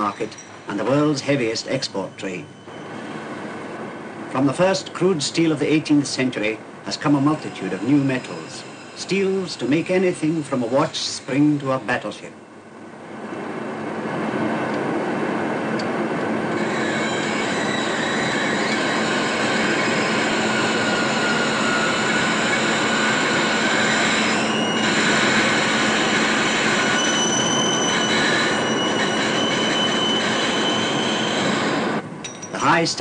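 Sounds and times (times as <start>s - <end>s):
high squealing tones: 0.0s - 3.5s, 6.9s - 12.6s, 16.5s - 32.0s
heavy metal machinery running: 16.6s - 32.0s.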